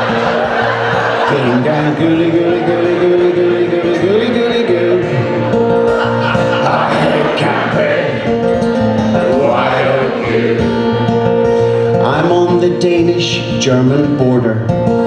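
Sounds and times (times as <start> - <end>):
acoustic guitar strumming: 0.0 - 15.0
person singing: 1.2 - 8.5, 9.1 - 14.2.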